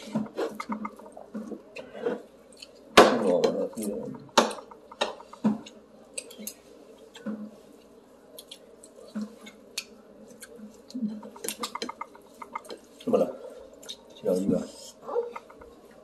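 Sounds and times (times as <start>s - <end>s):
faint steady hum: 0.0s - 16.0s
chewing and mouth sounds: 3.7s - 14.2s.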